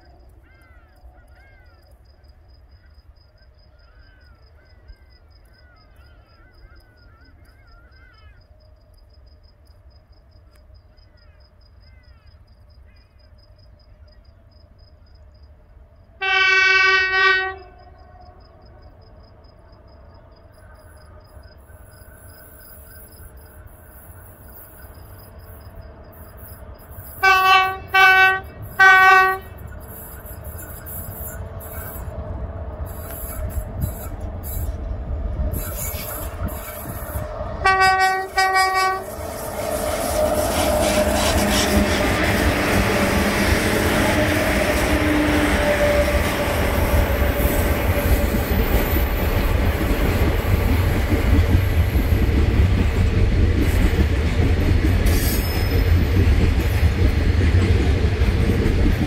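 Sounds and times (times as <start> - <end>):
passing train rumble: 0.0 - 59.0
locomotive hooter blasts: 35.8 - 46.4.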